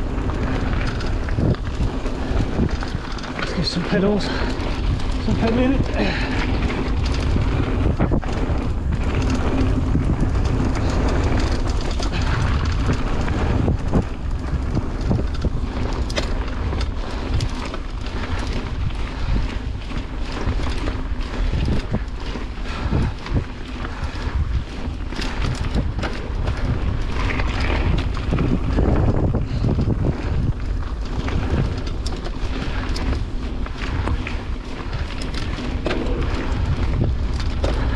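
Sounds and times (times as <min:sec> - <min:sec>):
bike clicking and rattling: 0:00.0 - 0:37.9
bike tyres on loose dirt: 0:00.0 - 0:37.9
wind buffeting microphone: 0:00.0 - 0:37.9.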